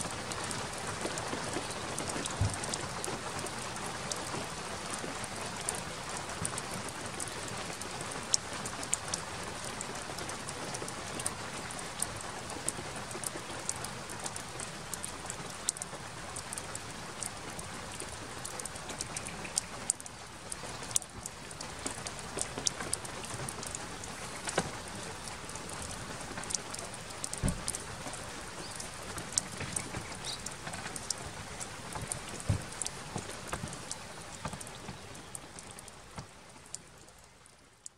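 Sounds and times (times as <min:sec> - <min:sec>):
steady rain falling: 0:00.0 - 0:37.9.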